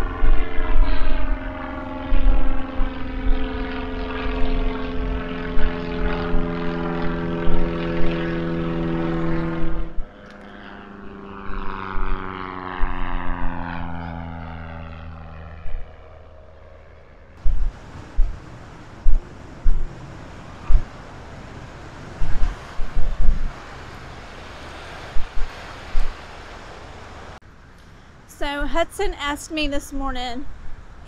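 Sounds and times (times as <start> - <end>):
wind thumping on microphone: 0.0 - 10.2, 11.4 - 13.8, 15.6 - 16.0, 17.4 - 23.8, 24.7 - 26.3
propeller airplane flying overhead: 0.0 - 31.0.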